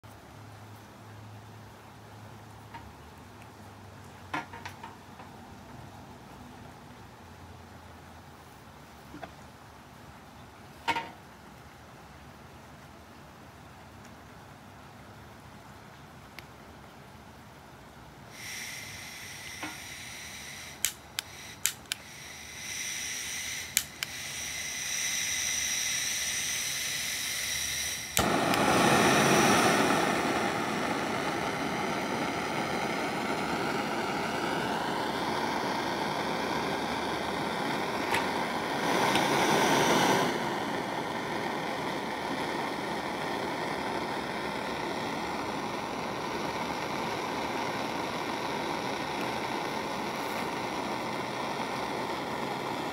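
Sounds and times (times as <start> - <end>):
gas torch flame rushing: 18.3 - 52.9
gas torch igniter clicks: 18.4 - 52.9.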